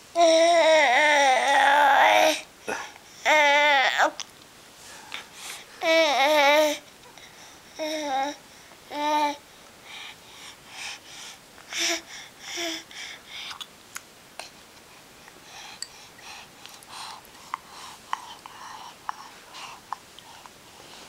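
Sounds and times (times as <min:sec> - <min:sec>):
baby babbling: 0:03.2 - 0:04.2, 0:05.8 - 0:06.8, 0:07.8 - 0:09.4.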